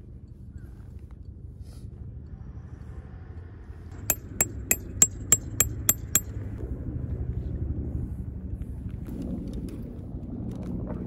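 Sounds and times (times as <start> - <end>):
hammer striking metal tent peg: 4.0 - 6.3.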